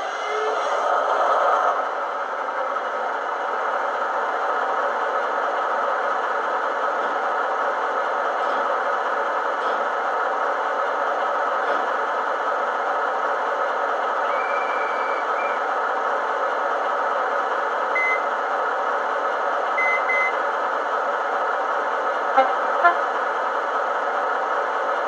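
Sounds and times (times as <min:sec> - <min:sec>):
diesel engine idling from small speaker: 0:00.0 - 0:25.0.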